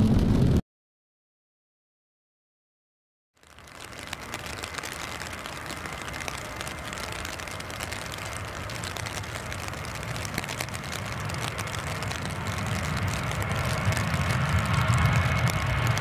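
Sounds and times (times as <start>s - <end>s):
jet engines on wet runway: 3.4s - 16.0s.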